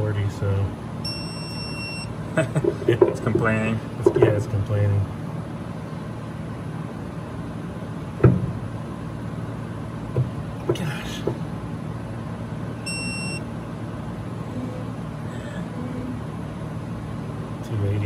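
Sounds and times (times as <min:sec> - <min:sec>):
steady low hum: 0:00.0 - 0:18.0
torque wrench beep: 0:01.0 - 0:02.1, 0:12.8 - 0:13.4.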